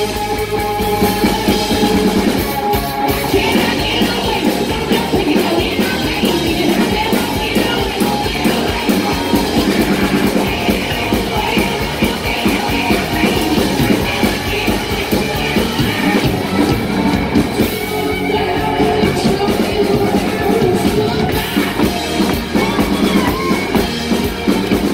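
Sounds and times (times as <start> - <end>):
bass guitar: 0.0 - 24.9
drum kit with steady beat: 0.0 - 24.9
electric guitar: 0.0 - 24.9
person singing into microphone: 3.1 - 23.9.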